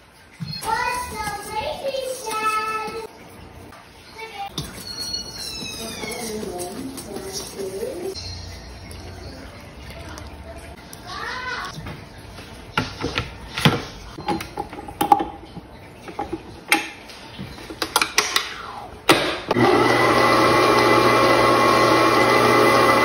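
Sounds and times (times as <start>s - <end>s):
stand mixer motor running: 19.5s - 23.0s.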